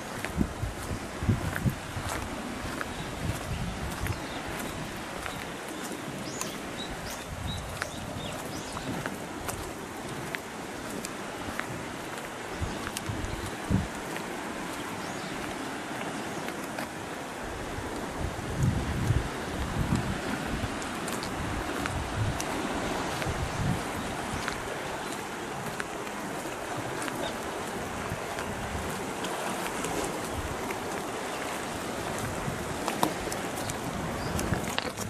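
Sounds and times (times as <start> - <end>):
sea surf: 0.0 - 35.0
wind buffeting microphone: 0.0 - 35.0.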